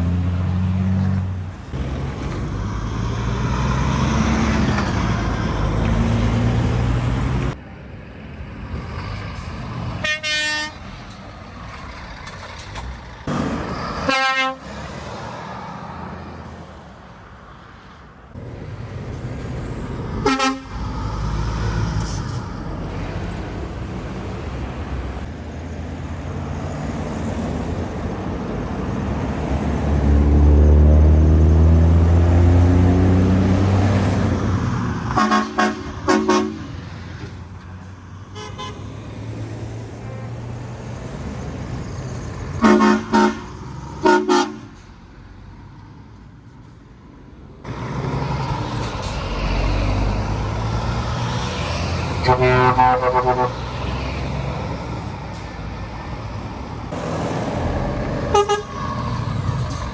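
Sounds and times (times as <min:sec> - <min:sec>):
diesel truck engines rumbling: 0:00.0 - 0:59.9
truck horn toots: 0:10.0 - 0:10.8, 0:14.0 - 0:14.7, 0:20.2 - 0:20.8, 0:35.1 - 0:36.7, 0:38.3 - 0:38.9, 0:42.6 - 0:44.8, 0:52.2 - 0:53.8, 0:58.3 - 0:58.8.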